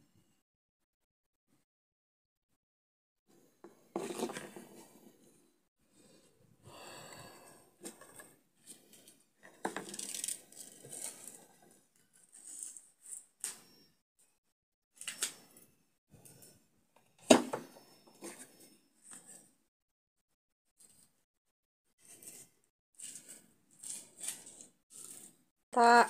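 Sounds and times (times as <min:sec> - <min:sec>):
dry seed pods rustling and scraping: 0:09.8 - 0:11.6, 0:23.0 - 0:25.4.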